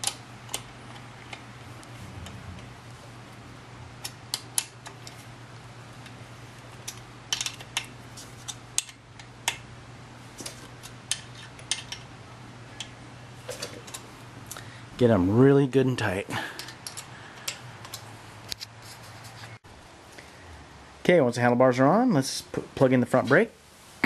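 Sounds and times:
steady low hum: 0:00.0 - 0:24.0
wrench clicking on bolts: 0:06.9 - 0:09.6.

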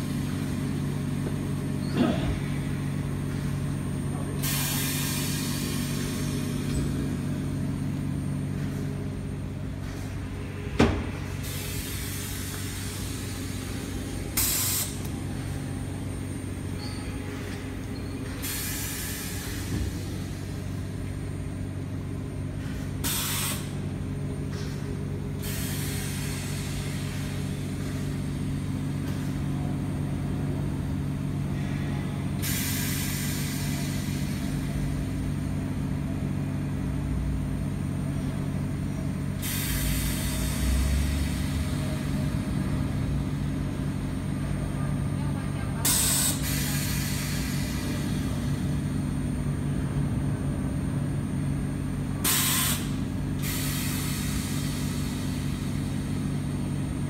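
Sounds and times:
hissing air bursts: 0:04.4 - 0:06.7, 0:11.2 - 0:15.2, 0:18.4 - 0:20.6, 0:22.6 - 0:23.8, 0:25.4 - 0:28.1, 0:32.4 - 0:34.7, 0:39.4 - 0:41.6, 0:45.8 - 0:48.3, 0:52.2 - 0:55.8.

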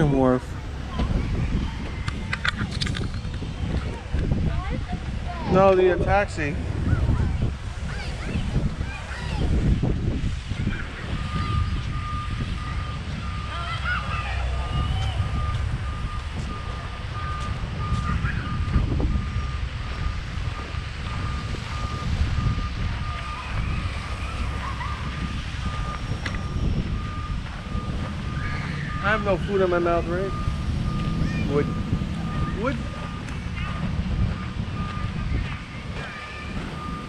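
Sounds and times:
low rumble: 0:06.2 - 0:37.0
reversing alarm beeping: 0:10.9 - 0:37.0.

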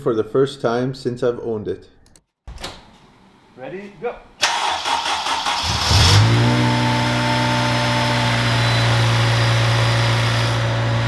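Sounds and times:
car engine starting and idling: 0:04.4 - 0:11.0.

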